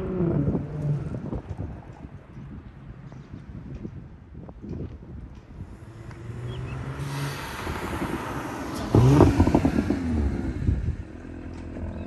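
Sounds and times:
car accelerating past: 5.7 - 12.0.

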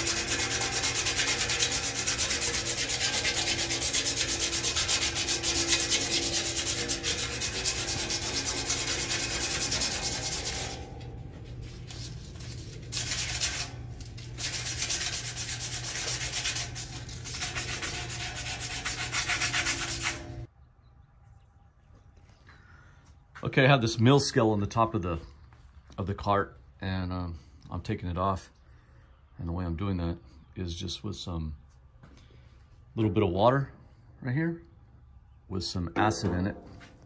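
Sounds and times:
abrasive cloth rasping on metal tube: 0.0 - 20.5.

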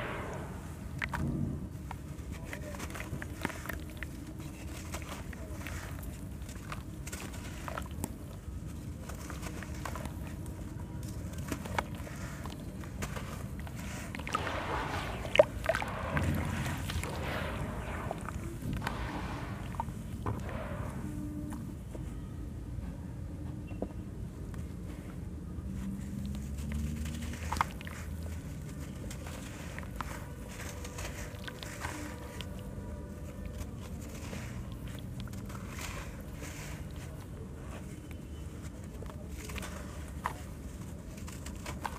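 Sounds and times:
low rumble: 0.0 - 2.4, 13.6 - 21.9
gritty crumbling by hand: 0.0 - 21.9, 26.0 - 41.9
small crackles: 0.0 - 22.2, 24.5 - 41.9
sand pattering into water: 11.1 - 21.2.

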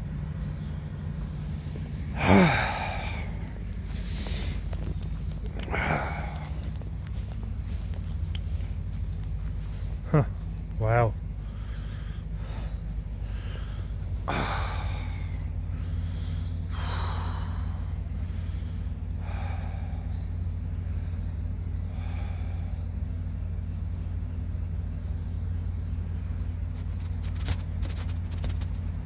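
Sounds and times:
steady low rumble: 0.0 - 29.0
person breathing heavily: 1.2 - 10.4, 11.2 - 23.3.

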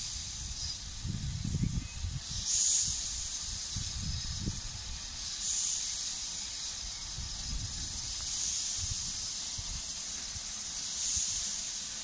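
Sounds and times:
wind rumbling on microphone: 0.0 - 5.3, 6.9 - 9.9
steam locomotive hissing: 0.0 - 12.0.

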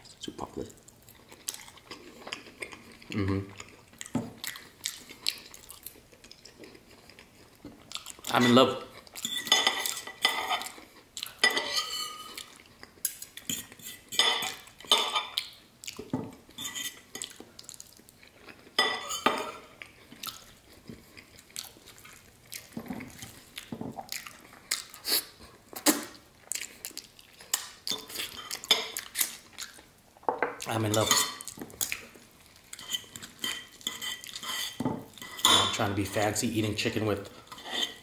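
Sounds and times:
cutlery clinking on ceramic plate: 11.4 - 12.3, 32.8 - 35.8.

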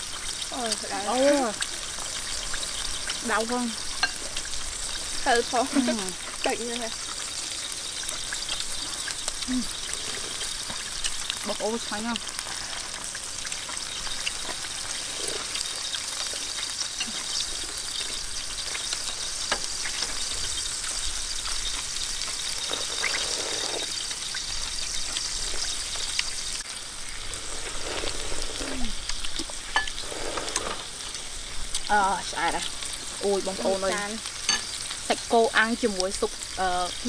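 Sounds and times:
meat sizzling on a grill pan: 0.0 - 37.0
slurping soup: 14.4 - 16.4, 22.6 - 24.0, 27.1 - 31.1.

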